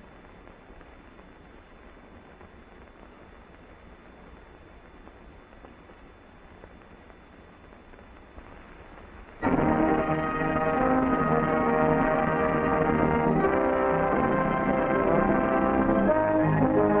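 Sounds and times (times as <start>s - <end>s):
film soundtrack hiss and hum: 0.0s - 17.0s
brass-led orchestral music: 9.4s - 17.0s.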